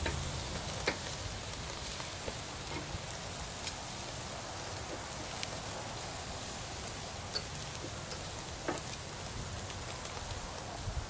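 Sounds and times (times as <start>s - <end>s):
coals crackling and popping: 0.0s - 11.0s
skewers sizzling on grill: 0.0s - 11.0s.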